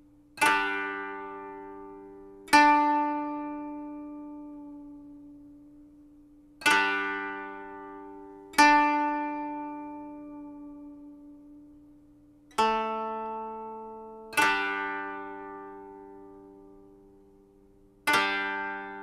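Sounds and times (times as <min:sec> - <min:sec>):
ringing plucked string chords: 0:00.0 - 0:06.0, 0:06.6 - 0:19.0.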